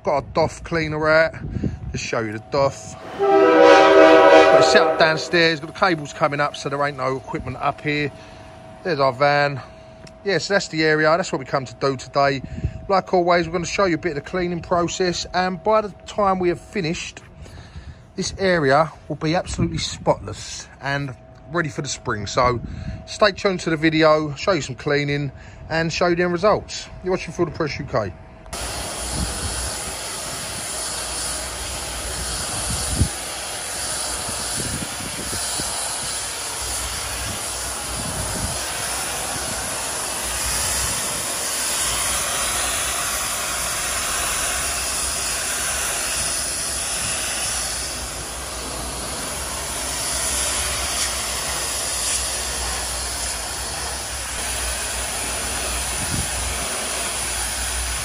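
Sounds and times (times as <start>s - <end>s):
steam jet hissing on tiles: 28.6s - 58.0s.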